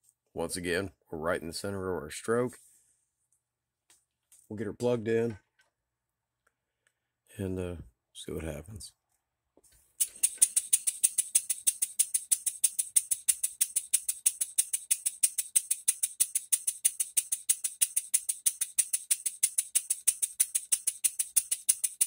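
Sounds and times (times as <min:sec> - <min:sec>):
person speaking: 0:04.4 - 0:05.4, 0:07.3 - 0:09.0.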